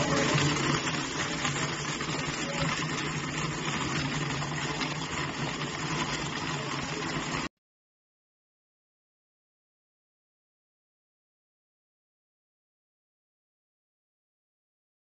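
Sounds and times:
blender motor running: 0:00.0 - 0:07.5
liquid churning: 0:00.0 - 0:07.5.

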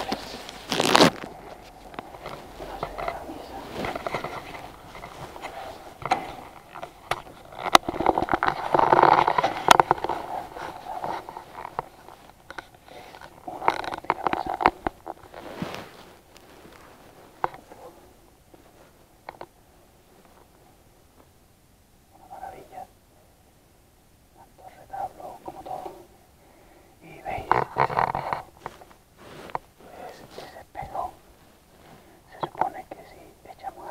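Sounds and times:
microphone handling noise: 0:00.0 - 0:20.6, 0:27.2 - 0:32.6.

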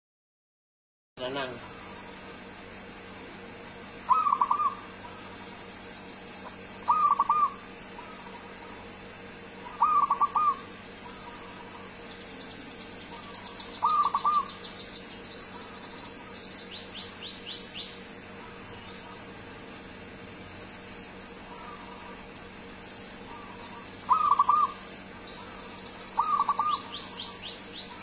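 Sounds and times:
high-pitched bird trills: 0:03.9 - 0:08.9, 0:09.6 - 0:20.0, 0:23.1 - 0:28.0
dove cooing: 0:04.0 - 0:05.6, 0:06.5 - 0:16.5, 0:21.4 - 0:28.0.

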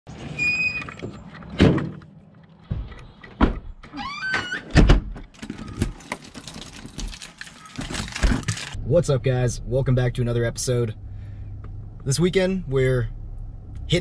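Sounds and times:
door squeaking: 0:00.2 - 0:01.2, 0:03.8 - 0:06.3, 0:07.3 - 0:08.7
door closing with thud: 0:02.7 - 0:06.0.

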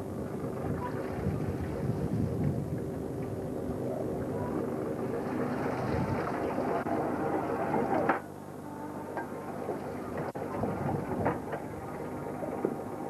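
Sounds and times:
boat diesel engine running: 0:00.0 - 0:13.0
wind noise on microphone: 0:00.1 - 0:04.6, 0:05.5 - 0:06.8, 0:10.2 - 0:11.9.

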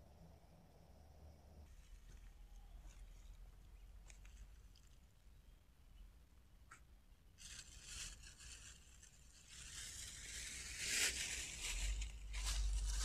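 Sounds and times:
rustling on pine needles: 0:01.6 - 0:05.5, 0:07.4 - 0:13.0.

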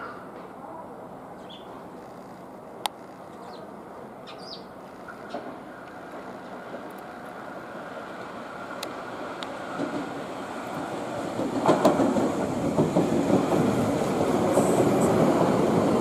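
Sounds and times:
electric train running hum: 0:01.0 - 0:16.0
bird chirps: 0:01.4 - 0:01.8, 0:03.4 - 0:05.3.

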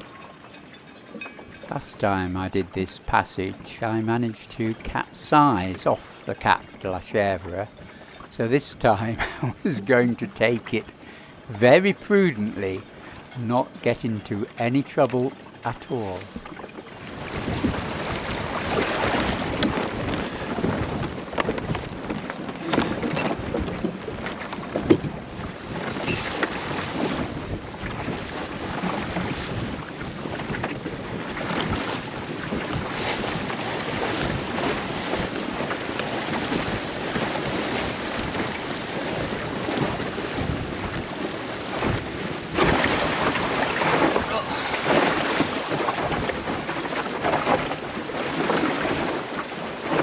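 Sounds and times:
water rushing along hull: 0:00.0 - 0:50.0
wind buffeting microphone: 0:16.1 - 0:50.0.

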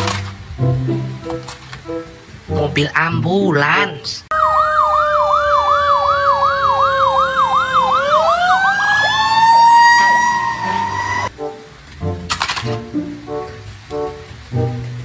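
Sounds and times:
ambulance siren yelping: 0:04.3 - 0:11.3
steady siren tone: 0:04.3 - 0:11.3.

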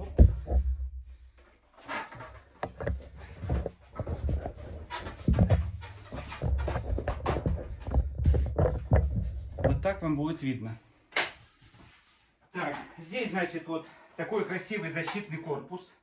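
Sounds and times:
knocks and rustles: 0:00.0 - 0:10.4.

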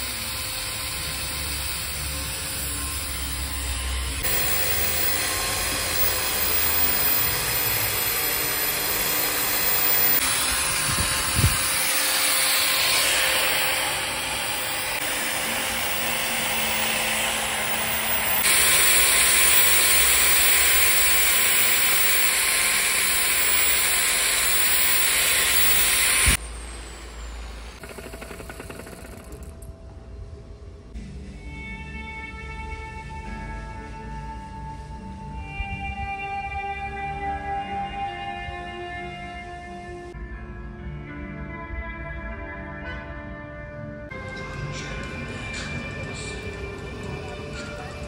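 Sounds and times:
angle grinder scrubbing wood: 0:00.0 - 0:29.4.

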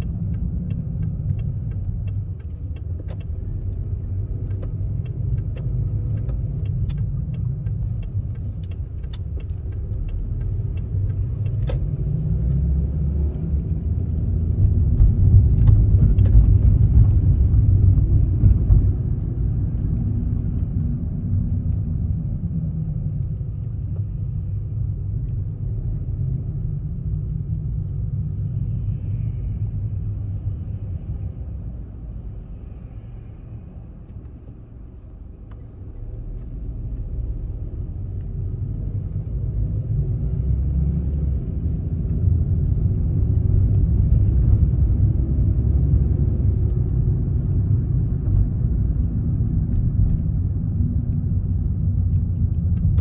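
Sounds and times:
turn signal ticking: 0:00.0 - 0:20.8
car engine and tyres rumbling: 0:00.0 - 0:53.0.

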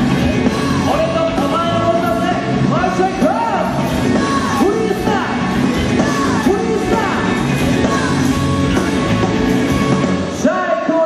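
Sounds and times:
drums and bass beat: 0:00.0 - 0:10.4
man singing and shouting: 0:00.5 - 0:08.3.

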